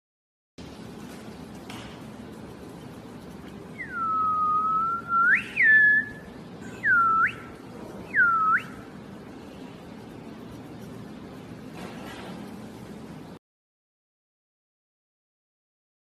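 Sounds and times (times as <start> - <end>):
person whistling gliding notes: 3.8 - 7.5.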